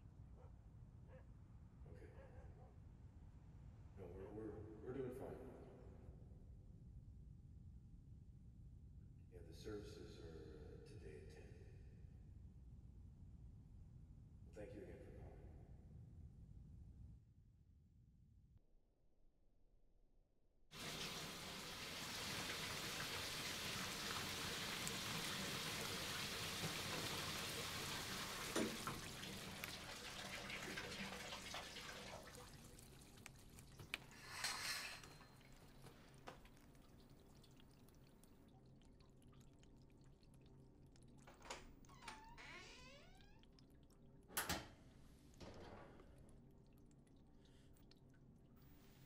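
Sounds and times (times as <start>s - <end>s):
shower water running: 20.8s - 43.0s
water splashes and drips: 20.8s - 49.0s.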